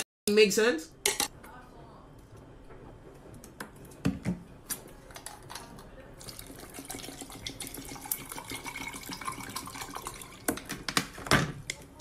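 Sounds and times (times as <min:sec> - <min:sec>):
coffee pouring over ice: 0:05.2 - 0:10.5.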